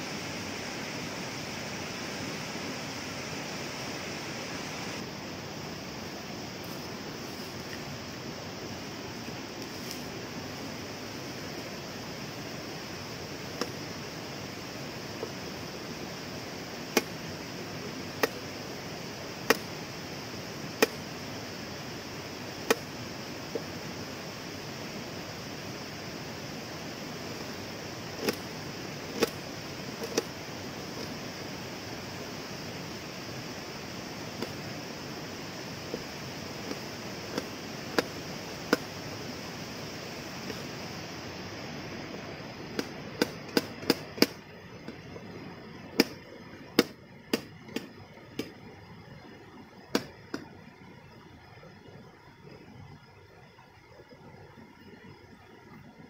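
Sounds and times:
waterfall and stream rushing: 0.0 - 44.4.

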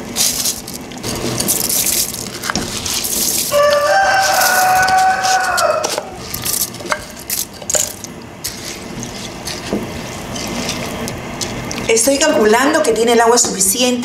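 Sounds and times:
pot of broth boiling and bubbling: 0.0 - 12.3.

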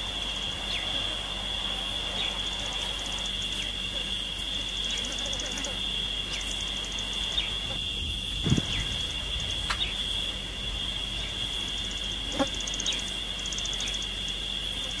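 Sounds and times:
fast insect trills: 0.0 - 15.0
insects droning: 0.0 - 15.0
low thump: 7.7 - 9.9.

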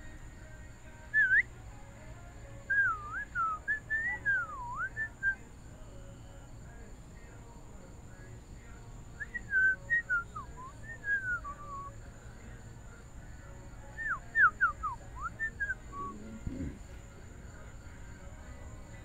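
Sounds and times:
whistled notes sliding: 1.2 - 1.5, 2.7 - 5.4, 9.2 - 11.9.

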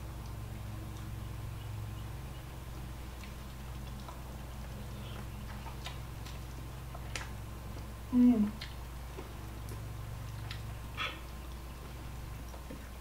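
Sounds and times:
steady low hum: 0.0 - 13.0
mouth sounds: 11.0 - 11.4.

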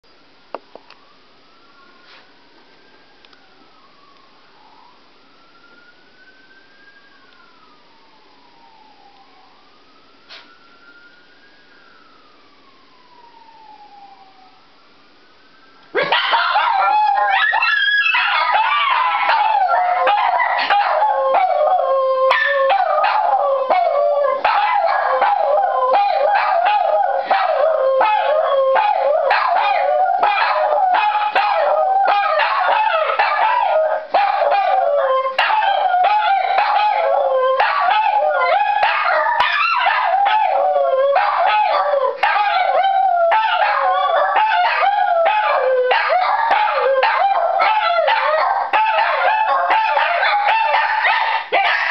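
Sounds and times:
fire siren: 0.8 - 50.9
dogs howling: 16.0 - 51.9.

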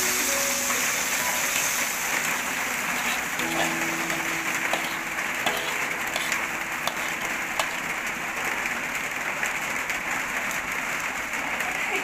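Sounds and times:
food sizzling in a wok: 0.0 - 12.0
metal spatula scraping wok: 1.3 - 8.1.

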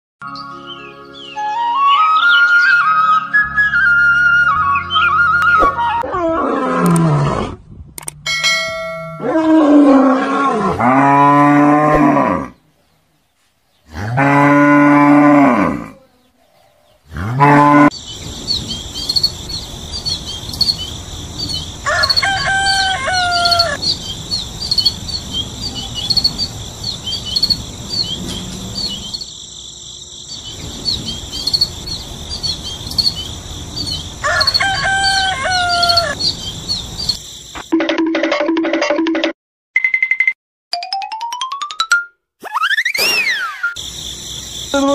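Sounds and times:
cattle mooing: 9.2 - 12.6, 13.9 - 16.1
birds chirping: 16.1 - 37.7.

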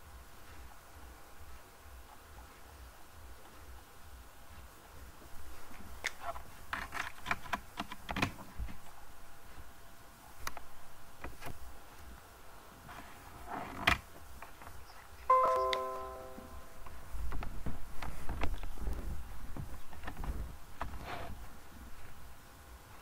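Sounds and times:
keyboard and mouse clicks: 6.0 - 8.4.

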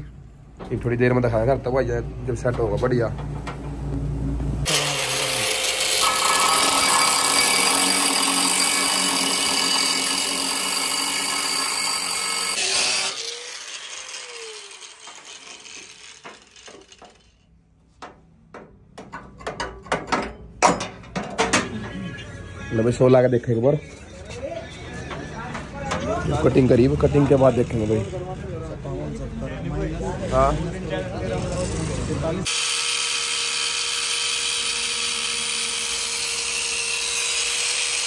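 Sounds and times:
angle grinder cutting steel: 4.6 - 17.5, 23.8 - 28.3, 30.4 - 38.0.

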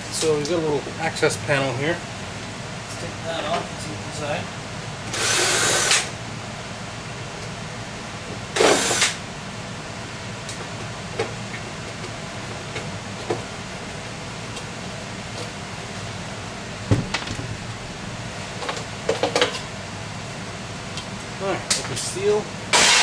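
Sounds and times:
power drill running: 5.1 - 6.1
steady low hum: 9.2 - 21.8.

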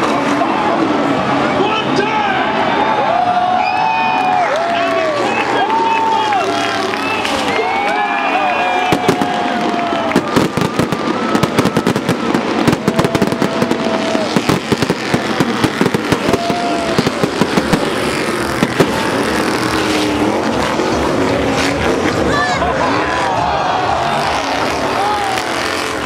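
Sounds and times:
truck engine passing: 0.0 - 26.0
fireworks fountains crackling: 3.9 - 22.4, 23.8 - 26.0.

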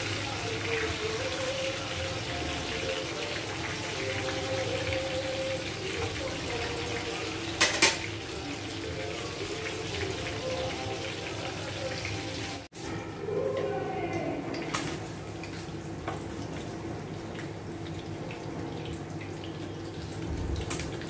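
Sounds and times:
fish sizzling in oil: 0.0 - 13.5.

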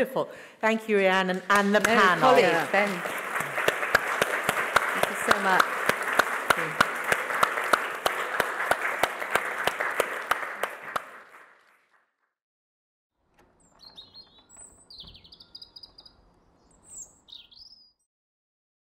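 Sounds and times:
audience applauding: 1.3 - 11.9
birds chirping: 13.5 - 18.1.

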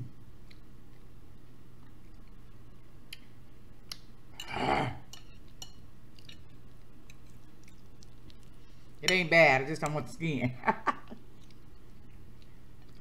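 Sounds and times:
low steady hum: 0.0 - 13.0
chewing: 0.4 - 3.3, 3.9 - 9.0, 11.2 - 13.0.

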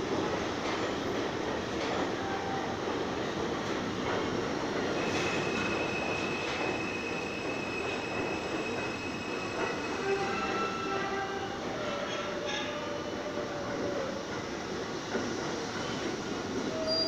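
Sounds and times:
subway train wheels rumbling: 0.0 - 17.0
high wheel squeal: 5.0 - 11.0, 16.7 - 17.0.

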